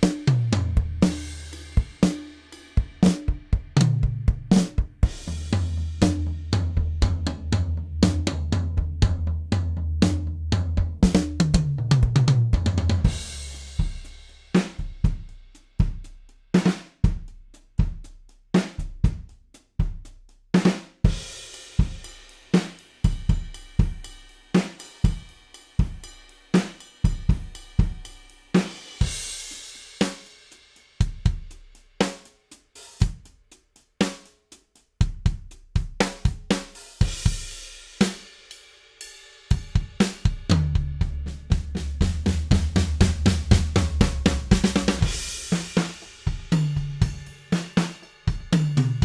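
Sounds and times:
snare drum: 0:00.0 - 0:02.4, 0:03.0 - 0:09.3, 0:10.0 - 0:15.2, 0:20.6 - 0:21.2, 0:28.6 - 0:29.2, 0:39.6 - 0:49.0
hi-hat: 0:13.3 - 0:40.4.

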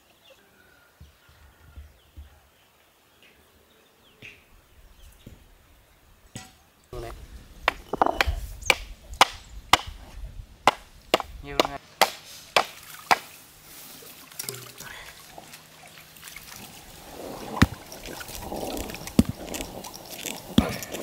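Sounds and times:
stone quern knocking: 0:06.4 - 0:10.0, 0:10.7 - 0:13.3, 0:17.6 - 0:18.0, 0:18.6 - 0:21.0.

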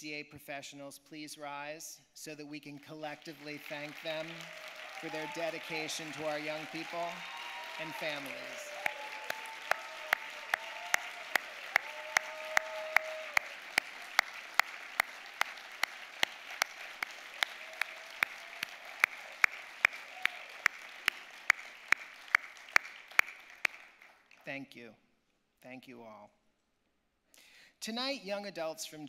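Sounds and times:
audience applauding: 0:03.1 - 0:24.5
loud close hand claps: 0:03.4 - 0:24.4.

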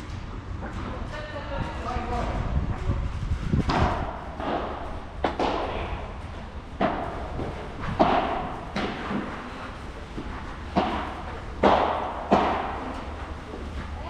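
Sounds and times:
padel ball hit by rackets: 0:03.7 - 0:06.0, 0:06.8 - 0:09.4, 0:10.7 - 0:13.0.

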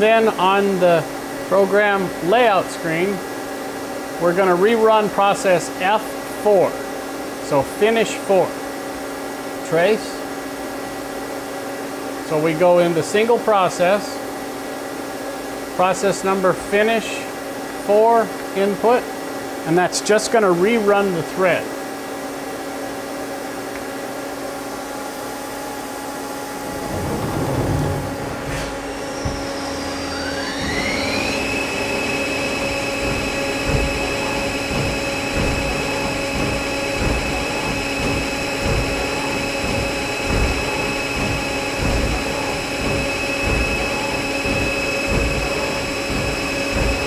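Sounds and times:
machine hum: 0:24.6 - 0:47.0
lathe spindle whine: 0:26.1 - 0:47.0
low rushing machine noise: 0:26.4 - 0:47.0
irregular low knocks: 0:26.6 - 0:47.0.

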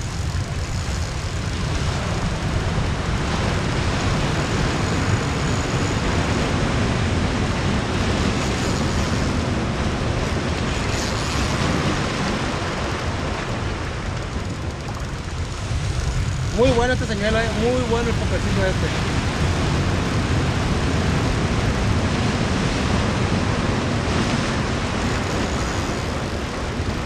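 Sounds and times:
ocean surf on rocky shore: 0:00.0 - 0:27.0.

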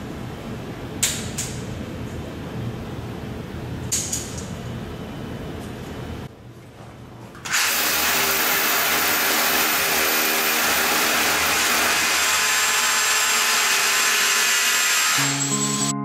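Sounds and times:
power drill boring into wall: 0:07.5 - 0:15.9.

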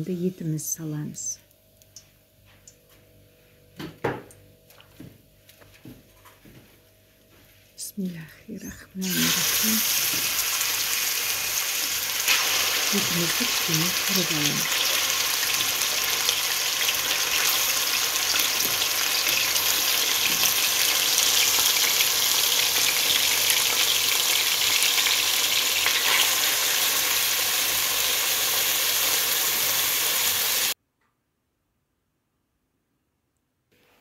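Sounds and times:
meat sizzling in hot oil: 0:09.0 - 0:30.8.

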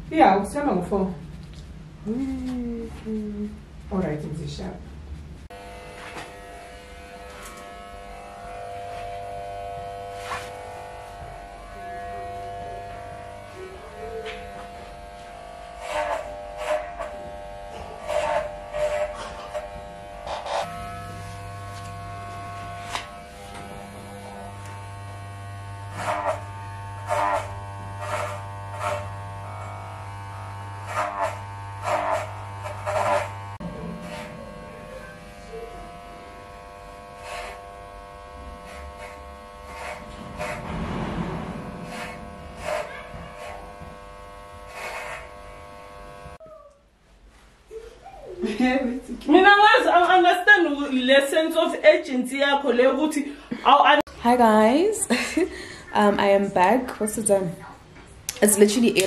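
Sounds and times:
electric hair clippers buzzing: 0:05.5 - 0:40.8, 0:41.5 - 0:46.4.

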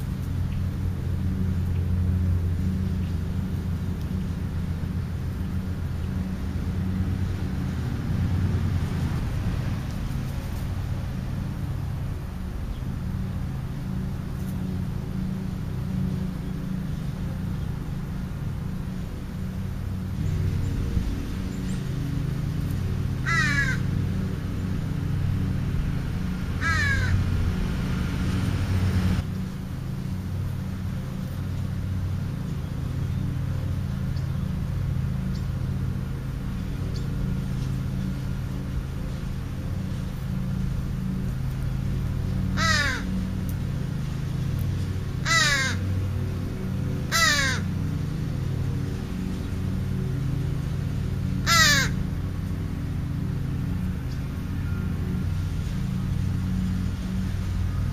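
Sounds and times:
steady low hum: 0:00.0 - 0:57.9
crow cawing: 0:23.2 - 0:23.9, 0:26.6 - 0:27.3, 0:42.6 - 0:43.2, 0:45.2 - 0:45.9, 0:47.1 - 0:47.8, 0:51.4 - 0:52.0.

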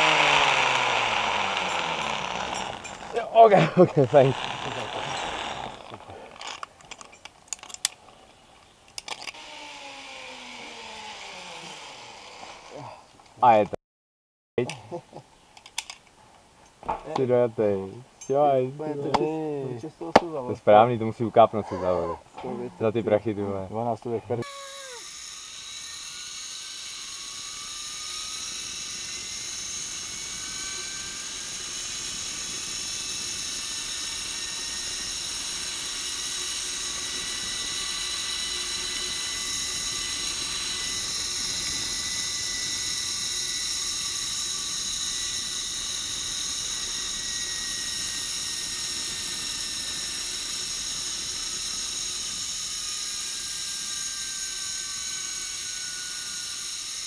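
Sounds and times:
zipline pulleys whirring on cable: 0:00.0 - 0:07.8, 0:09.0 - 0:13.0, 0:24.4 - 0:57.0.

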